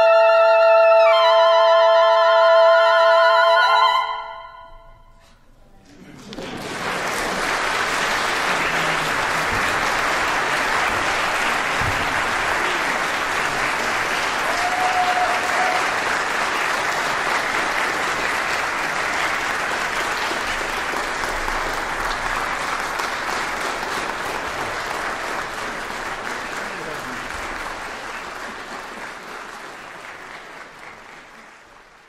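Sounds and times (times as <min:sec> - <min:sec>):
woodwind quintet playing: 0:00.0 - 0:05.0
audience applauding: 0:05.9 - 0:32.0.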